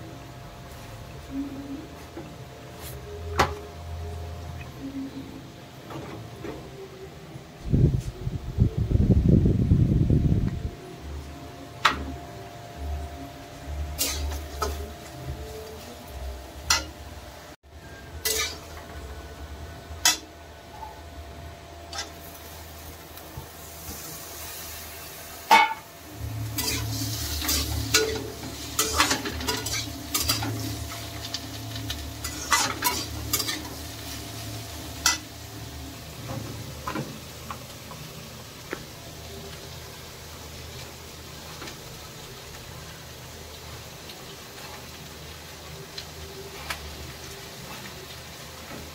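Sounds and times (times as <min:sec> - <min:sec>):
food sizzling in a pan: 0:12.7 - 0:48.9.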